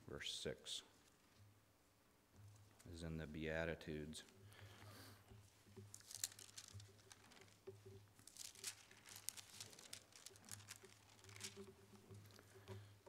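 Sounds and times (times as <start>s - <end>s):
pages rustling and crinkling: 5.7s - 12.9s.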